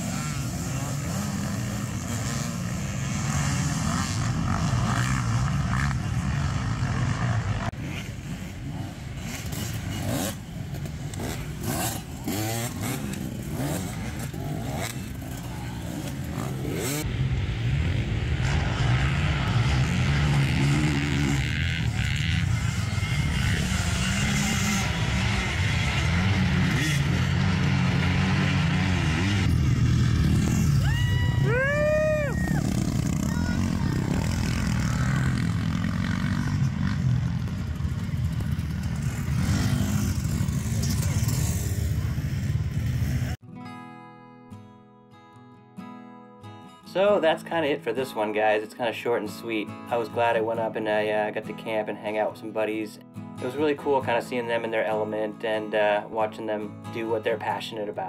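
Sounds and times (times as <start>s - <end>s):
dirt bike engines revving: 0.0s - 43.4s.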